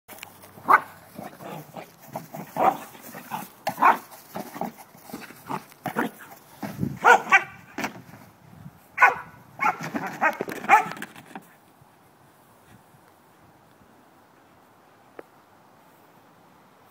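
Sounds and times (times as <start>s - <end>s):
dog barking: 0.6s - 1.6s, 2.6s - 2.9s, 3.7s - 4.0s, 7.0s - 7.7s, 9.0s - 11.0s.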